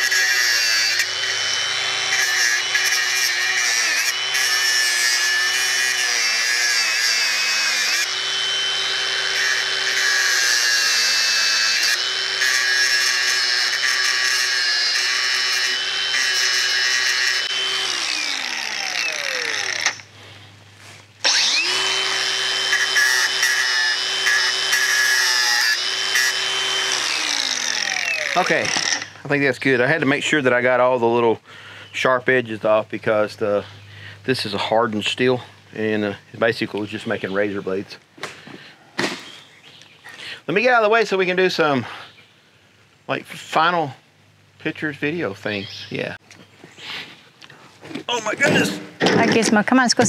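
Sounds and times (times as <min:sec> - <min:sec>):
angle grinder grinding steel: 0:00.0 - 0:20.1, 0:21.2 - 0:29.3.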